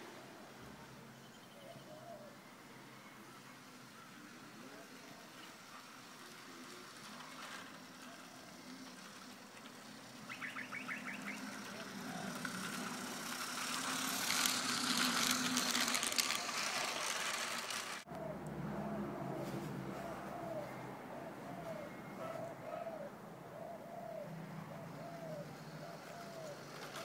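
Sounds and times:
model train running: 3.2s - 18.1s, 25.6s - 27.0s
wheels clicking over rail joints: 5.2s - 18.1s, 25.0s - 27.0s.

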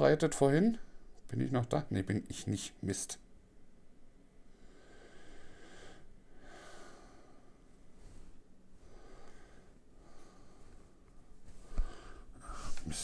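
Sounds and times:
man breathing: 4.4s - 13.0s.

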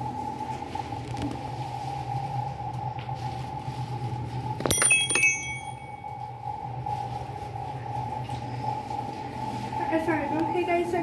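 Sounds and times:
steady low hum: 0.0s - 11.0s
small brass bells jingling: 4.7s - 5.9s.

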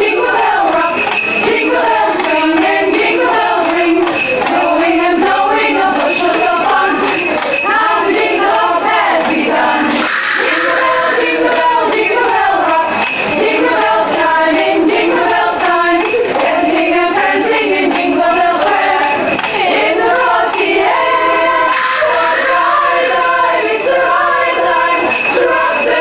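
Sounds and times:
sleigh bells jingling: 0.0s - 26.0s
women singing in harmony: 0.0s - 26.0s.

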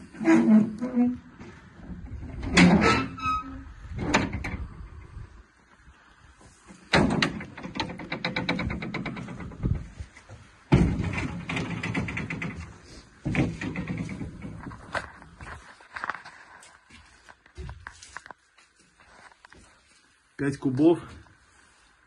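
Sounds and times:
metal door clanks and scrapes: 1.8s - 4.8s, 6.7s - 10.0s, 10.7s - 15.2s.

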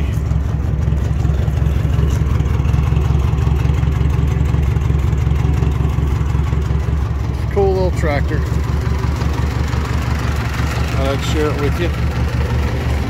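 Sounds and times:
tractor engine idling: 0.0s - 13.0s.

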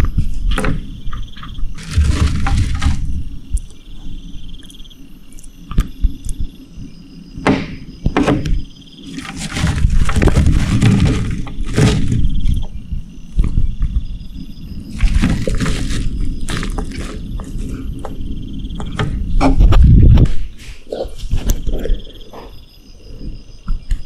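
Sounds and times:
knocks and rustling: 0.0s - 3.3s, 7.4s - 14.1s, 14.9s - 18.2s
insect trilling: 0.9s - 19.4s.

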